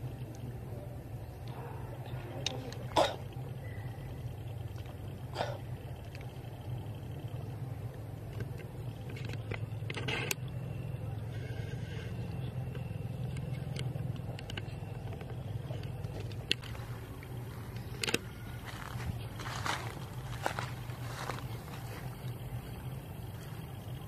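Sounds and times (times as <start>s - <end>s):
steady low hum: 0.0s - 24.0s
faint clicks and rustles: 11.3s - 24.0s.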